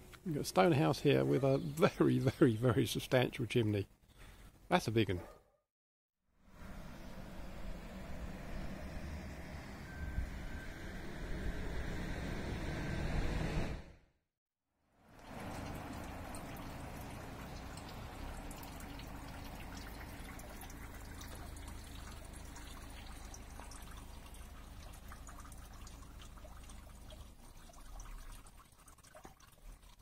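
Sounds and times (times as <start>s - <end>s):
low steady rumble: 6.5s - 13.9s, 15.2s - 28.4s
water trickling down drain: 15.1s - 30.0s.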